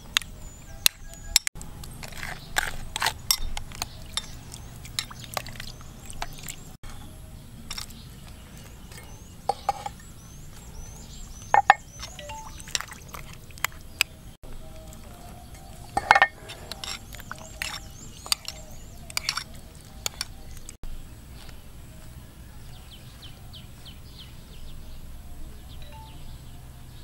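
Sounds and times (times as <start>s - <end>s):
metal spoon clinking against bowl: 3.3s - 5.4s, 11.5s - 12.9s, 15.6s - 20.4s
liquid pouring and splashing: 4.0s - 6.8s
faint high chirps: 8.4s - 13.2s, 25.5s - 26.7s.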